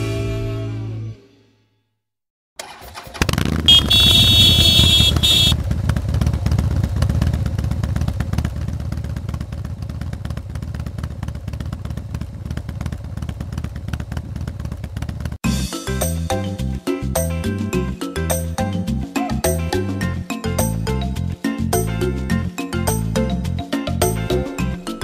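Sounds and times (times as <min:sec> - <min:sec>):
engine low rumble and crackle: 0:03.2 - 0:15.4.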